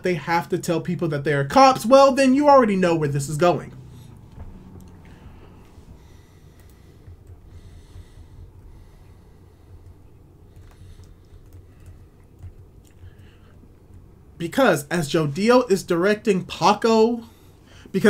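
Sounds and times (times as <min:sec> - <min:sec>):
low room hum: 0:00.0 - 0:18.0
soft breath: 0:03.8 - 0:14.4, 0:17.2 - 0:17.9
computer keys clicking: 0:06.6 - 0:07.5, 0:09.7 - 0:14.0.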